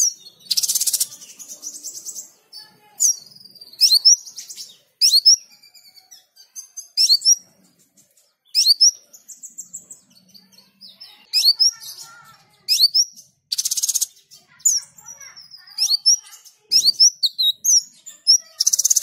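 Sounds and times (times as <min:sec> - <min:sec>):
bird buzzy trill: 0:00.0 - 0:07.5, 0:10.5 - 0:19.0
bird chirping: 0:00.0 - 0:19.0.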